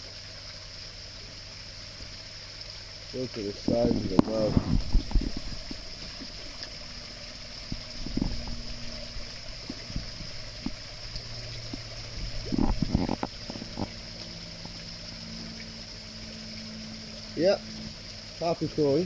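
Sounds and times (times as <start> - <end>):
low steady hum: 0.0 - 19.0
water splashing: 3.1 - 19.0
fish slurping at water surface: 3.8 - 15.4.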